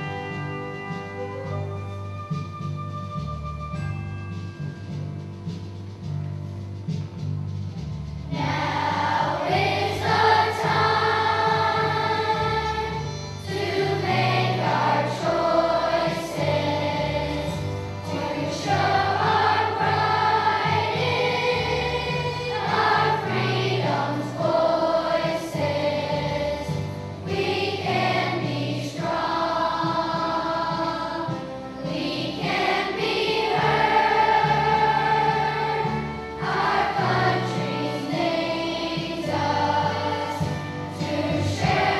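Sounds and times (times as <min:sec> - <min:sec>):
instrumental accompaniment with bass: 0:00.0 - 0:41.9
children's choir singing: 0:08.3 - 0:41.9.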